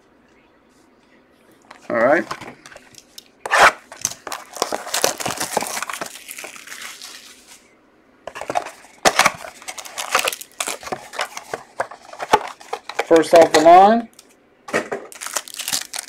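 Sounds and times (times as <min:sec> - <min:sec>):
plastic wrap crackling and tearing: 0:03.5 - 0:07.6, 0:08.4 - 0:13.6, 0:15.1 - 0:16.0.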